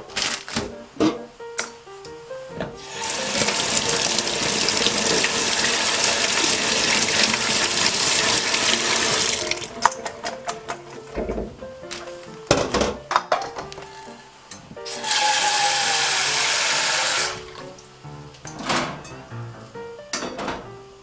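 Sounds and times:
tap water rushing into colander: 2.8s - 10.7s, 14.9s - 17.7s.

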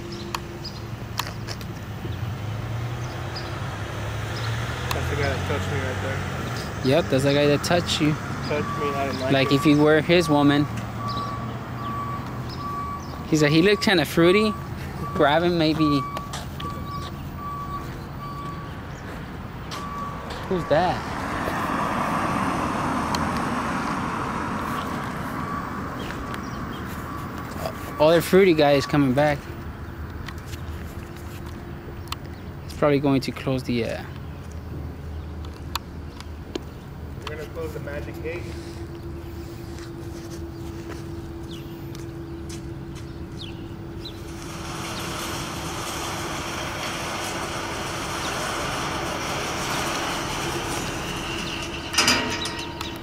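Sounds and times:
vehicle driving past: 2.0s - 30.1s, 37.3s - 53.0s
sliding gate rattling: 44.0s - 53.0s.

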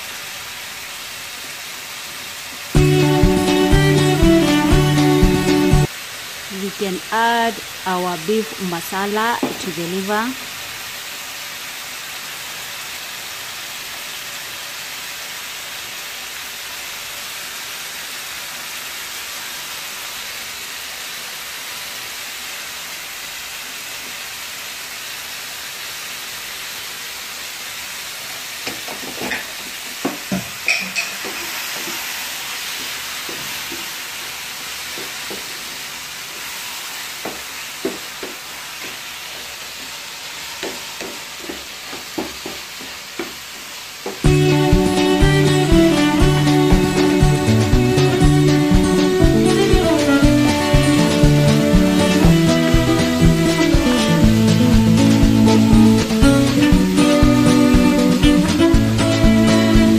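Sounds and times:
liver sizzling in a pan: 0.0s - 59.9s.

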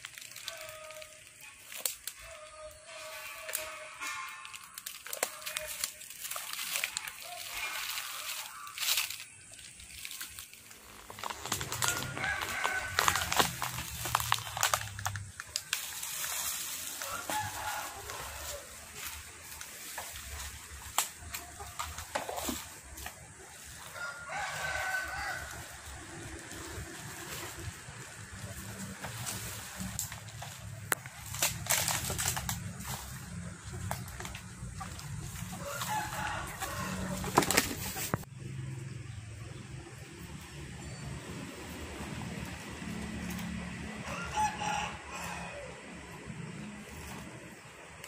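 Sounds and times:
plastic bags and leaves rustling: 0.0s - 38.3s
rooster crowing: 11.6s - 14.0s, 16.9s - 18.8s, 23.6s - 26.8s, 35.4s - 37.5s, 44.0s - 46.0s.

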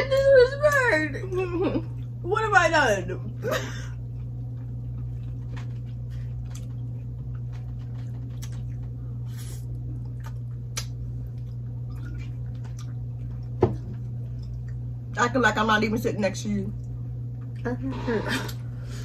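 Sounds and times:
steady low hum: 0.0s - 19.0s
wet mouth eating sounds: 3.9s - 14.9s.

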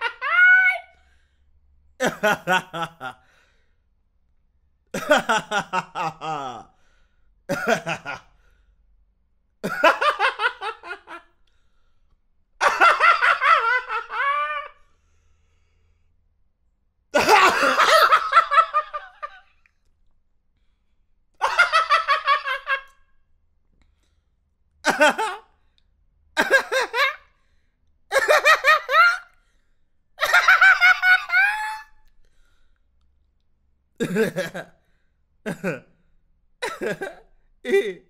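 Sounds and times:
man laughing: 2.0s - 3.2s, 5.0s - 6.7s, 7.5s - 8.2s, 9.6s - 11.2s, 12.6s - 14.8s, 17.2s - 19.4s, 21.4s - 22.9s, 24.9s - 25.4s, 26.4s - 27.2s, 28.1s - 29.2s, 30.2s - 31.9s, 34.0s - 34.7s, 36.6s - 38.0s.

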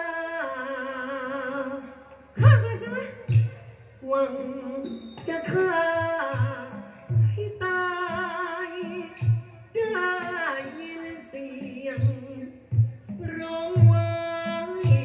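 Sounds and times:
person singing with vibrato: 0.0s - 15.0s
low drum beats: 2.4s - 4.4s, 5.5s - 10.7s, 11.4s - 15.0s.

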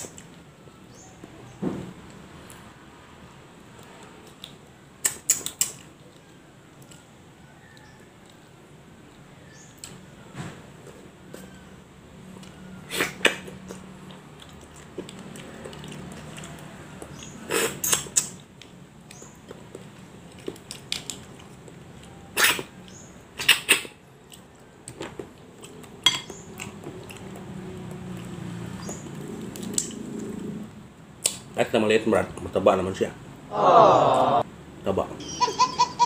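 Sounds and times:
mouth sucking and chewing: 4.3s - 6.2s, 12.8s - 22.8s.

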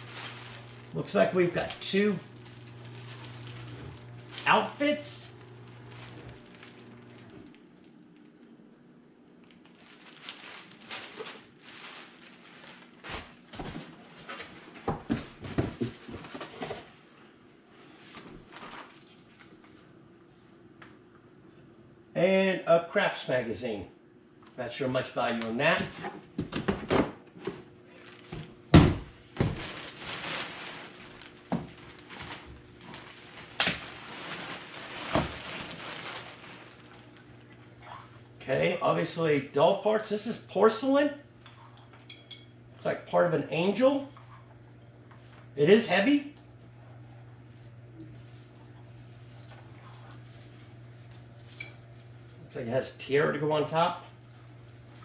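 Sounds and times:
plastic bags crinkling: 0.0s - 8.6s, 9.3s - 16.1s, 27.9s - 28.4s, 29.3s - 37.5s.

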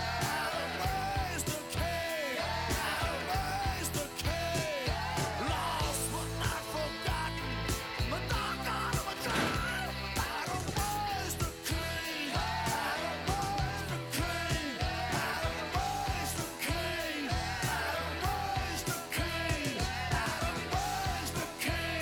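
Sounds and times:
song with singing over a beat: 0.0s - 22.0s.

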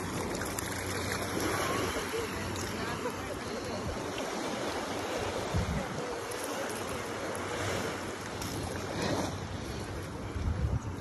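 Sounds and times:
surf washing on shore: 0.0s - 11.0s
wind on microphone: 5.2s - 6.6s, 8.5s - 11.0s.

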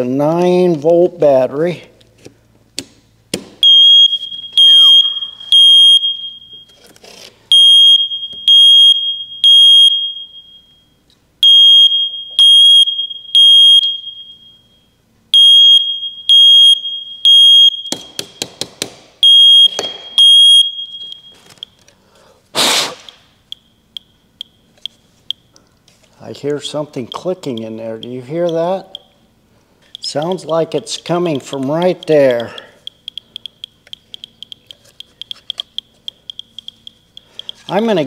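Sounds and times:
smoke detector alarm beeps: 3.6s - 6.9s, 7.5s - 18.6s, 19.2s - 22.3s, 22.9s - 25.6s, 27.0s - 38.0s
sharp clicks: 29.8s - 37.7s.

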